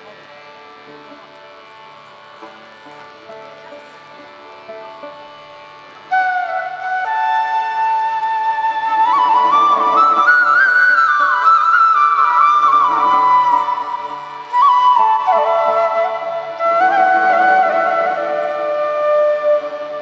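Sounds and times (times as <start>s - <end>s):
bamboo flute melody: 6.0s - 20.0s.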